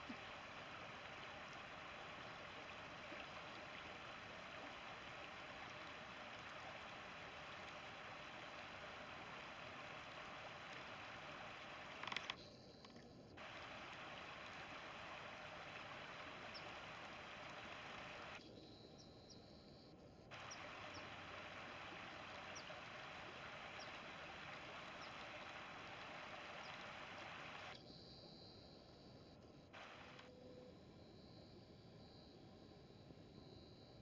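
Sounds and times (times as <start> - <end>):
shallow river rushing: 0.0 - 12.4, 13.4 - 18.4, 20.3 - 27.7
faint high chirps: 18.4 - 21.1, 27.5 - 34.0.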